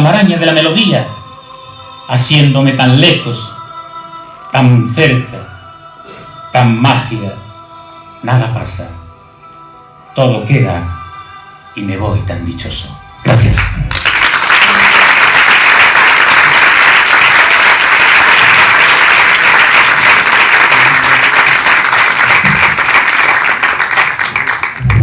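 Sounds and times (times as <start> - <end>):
audience applauding: 13.8 - 25.0.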